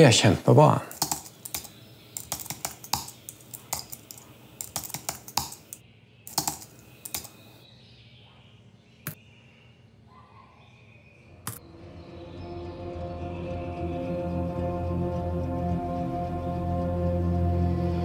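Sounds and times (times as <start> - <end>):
typing on laptop keyboard: 0.9 - 7.6.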